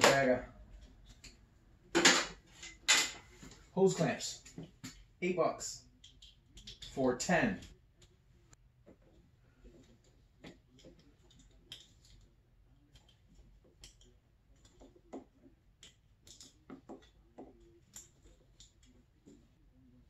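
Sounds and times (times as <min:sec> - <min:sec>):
hands clicking and rustling hoses: 0:05.9 - 0:08.2, 0:08.8 - 0:20.0.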